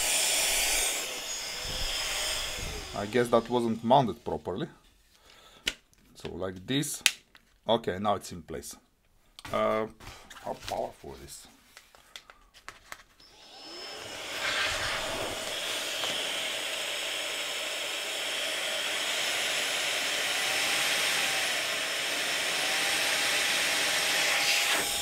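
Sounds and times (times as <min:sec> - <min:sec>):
electric blower motor whooshing: 0:00.0 - 0:03.8, 0:13.2 - 0:25.0.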